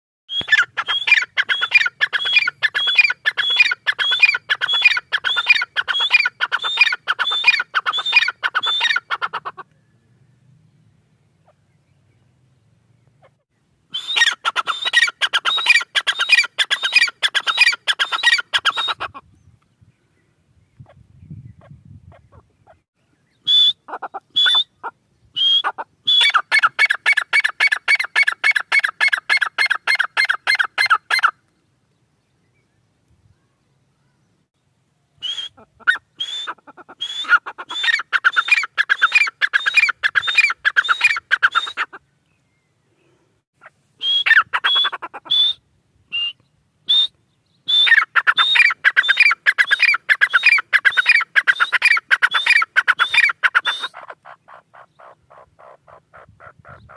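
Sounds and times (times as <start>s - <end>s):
bird calling shrill rising notes: 0.3s - 9.2s, 13.9s - 19.1s, 35.2s - 42.7s, 44.0s - 54.0s.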